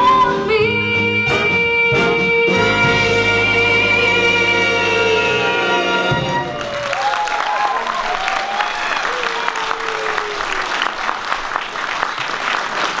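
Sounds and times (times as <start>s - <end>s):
audience applauding: 6.2s - 13.0s.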